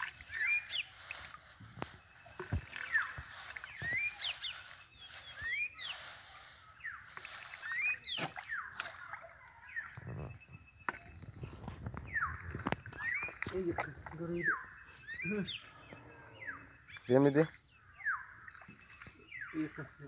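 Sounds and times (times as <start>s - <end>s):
hands splashing in muddy water: 0.0s - 6.0s, 7.0s - 14.4s.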